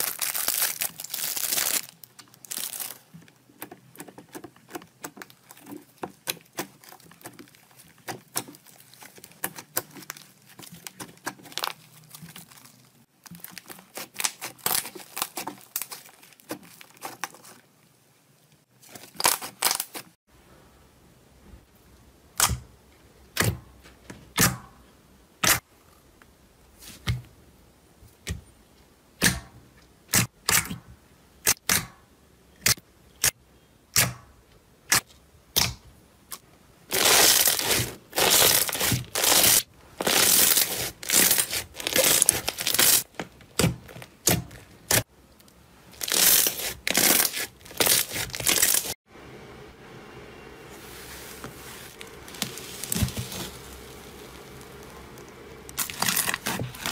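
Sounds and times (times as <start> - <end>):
slime crackling when squeezed: 0.0 - 3.0, 36.9 - 43.0, 45.9 - 49.0
soft rustle: 50.7 - 56.9.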